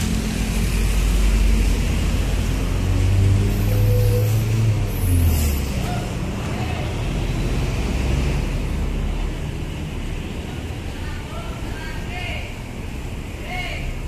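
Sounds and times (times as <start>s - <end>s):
diesel truck engine rumbling: 0.0s - 14.0s.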